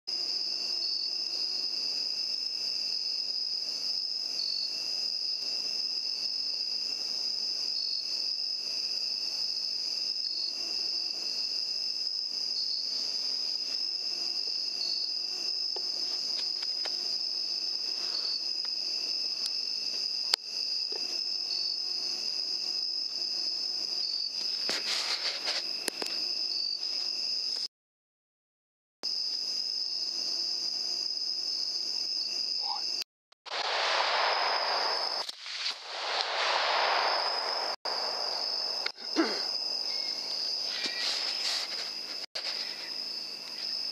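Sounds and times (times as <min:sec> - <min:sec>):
night insects trilling: 0:00.1 - 0:27.7, 0:29.1 - 0:33.0, 0:33.6 - 0:43.9
crackling rustle: 0:24.7 - 0:26.2, 0:40.6 - 0:42.9.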